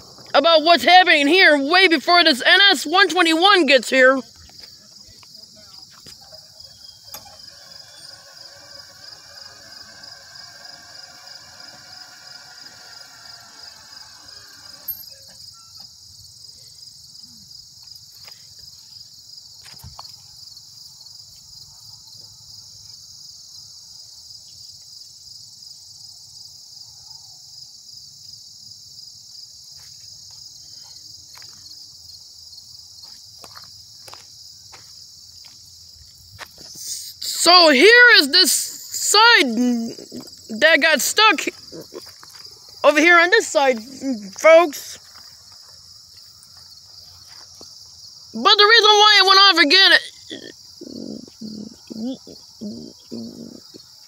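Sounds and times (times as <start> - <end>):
crickets and insects trilling: 0.0 - 54.0.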